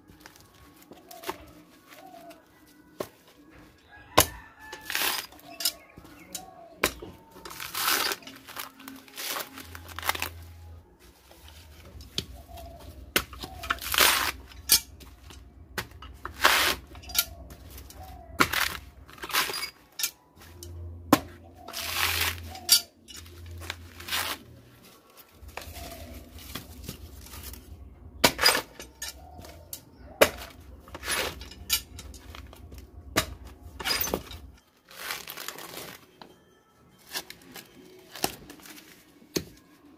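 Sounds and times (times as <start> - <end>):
coconut husk fibres ripping: 4.3 - 5.6, 6.8 - 14.8, 15.8 - 19.7, 21.6 - 28.8, 34.8 - 36.1.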